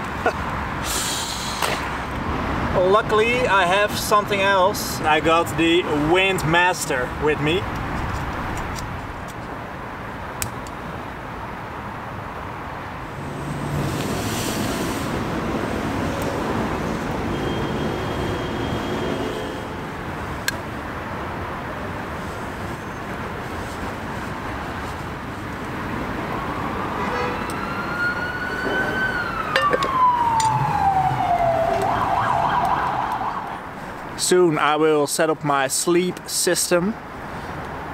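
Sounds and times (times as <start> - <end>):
distant siren wailing: 13.1 - 20.1, 26.3 - 33.7.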